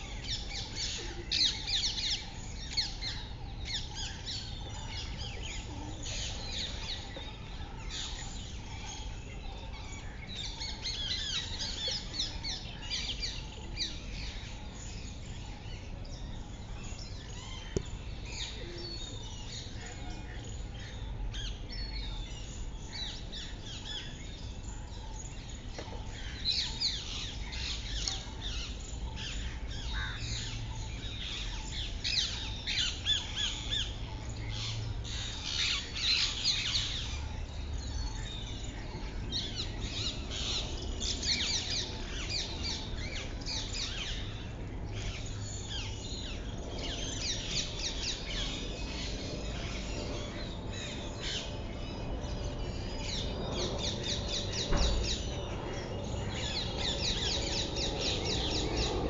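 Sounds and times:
steady low rumble: 43.4s - 59.0s.

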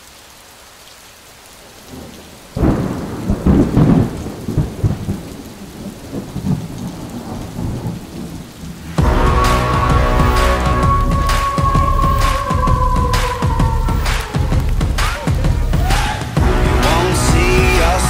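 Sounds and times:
rain hissing: 0.0s - 18.0s
thunderclap rumbling: 1.8s - 18.0s
music: 9.0s - 18.0s.

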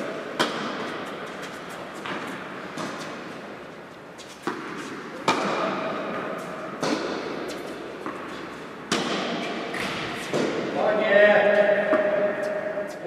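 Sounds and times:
tennis ball hits and bounces: 0.4s - 3.1s, 4.2s - 10.6s, 11.8s - 12.6s.

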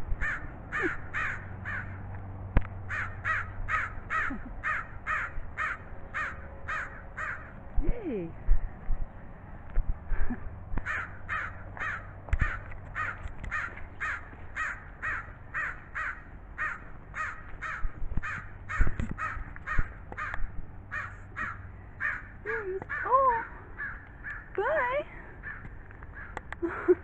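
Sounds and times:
crow cawing: 0.2s - 2.0s, 2.9s - 7.6s, 10.8s - 24.6s, 25.4s - 26.5s.

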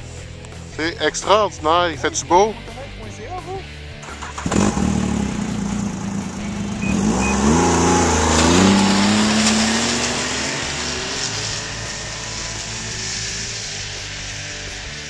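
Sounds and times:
snowmobile engine revving: 4.0s - 15.0s.

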